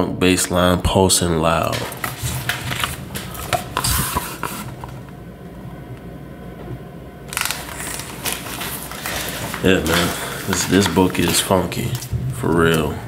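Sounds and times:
book pages rustling: 0:01.6 - 0:05.1, 0:07.3 - 0:13.0.

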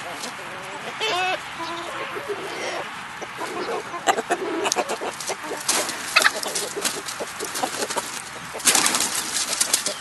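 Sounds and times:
chickens clucking: 0:00.0 - 0:10.0
rustling: 0:04.8 - 0:10.0.

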